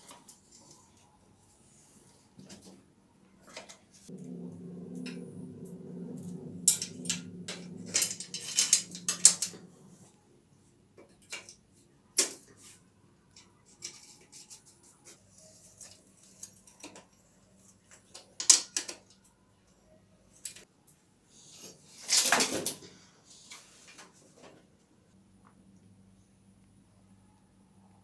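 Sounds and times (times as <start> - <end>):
low steady hum: 4.1 - 10.9.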